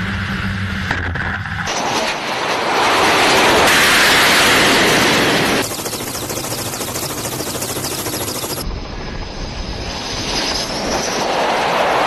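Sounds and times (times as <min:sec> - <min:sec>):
jet engines roaring and whining: 0:00.0 - 0:12.0
helicopter rotor chop: 0:01.7 - 0:08.7.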